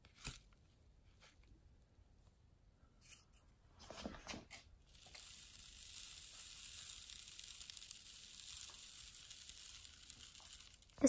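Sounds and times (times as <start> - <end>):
faint hiss: 4.9 - 11.0.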